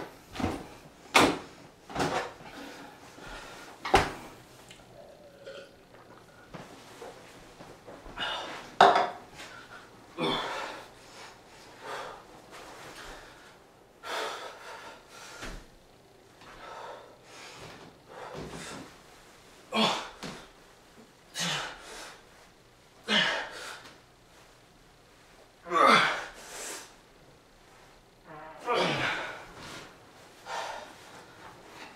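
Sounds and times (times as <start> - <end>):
man breathing hard: 2.4 - 3.9, 9.4 - 15.7, 16.4 - 18.9, 28.8 - 31.9.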